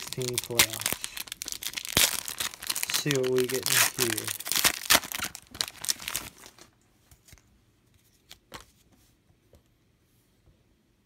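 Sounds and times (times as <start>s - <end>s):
foil wrapper crinkling and tearing: 0.0s - 6.7s.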